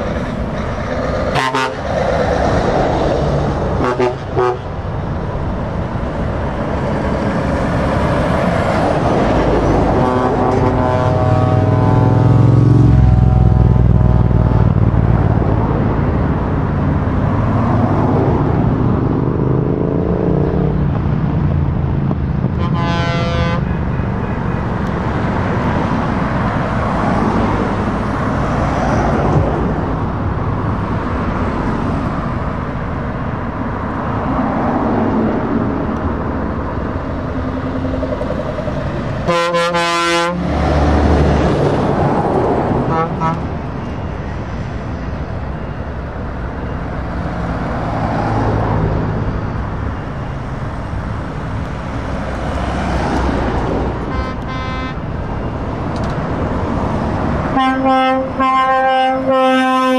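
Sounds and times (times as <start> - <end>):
deep truck engine rumble: 0.0 - 58.4
vehicles driving past: 0.0 - 59.9
horn toot: 1.3 - 1.9, 3.8 - 4.7, 9.9 - 12.2, 22.6 - 23.7, 39.2 - 40.5, 42.9 - 43.5, 54.0 - 55.0, 57.5 - 59.9.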